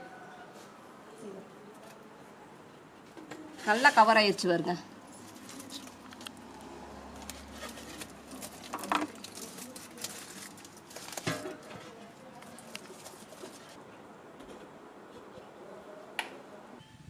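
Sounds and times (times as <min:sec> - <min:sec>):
foil crinkling: 0:05.2 - 0:06.4, 0:07.1 - 0:13.8.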